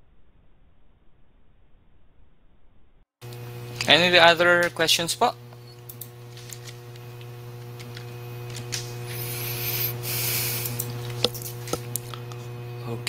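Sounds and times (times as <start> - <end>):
low electrical hum: 0.0 - 13.0
rushing hiss: 9.0 - 10.8.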